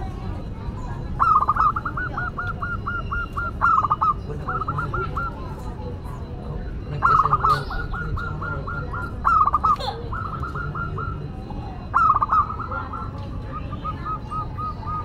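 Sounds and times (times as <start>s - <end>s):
dove cooing: 0.0s - 15.0s.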